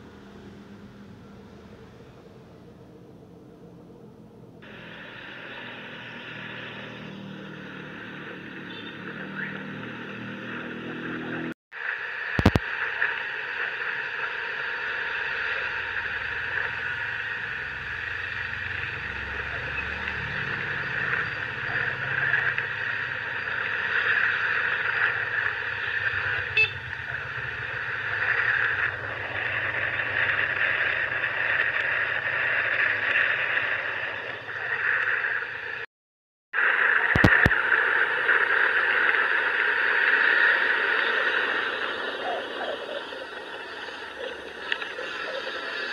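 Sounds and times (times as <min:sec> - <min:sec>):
tyres hissing on wet road: 0:04.6 - 0:35.9, 0:36.6 - 0:45.9
motor scooter engine: 0:24.9 - 0:33.1.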